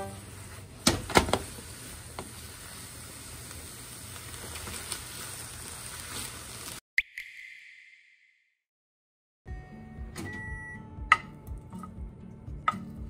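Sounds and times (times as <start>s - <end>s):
food sizzling in frying pan: 0.0s - 6.8s.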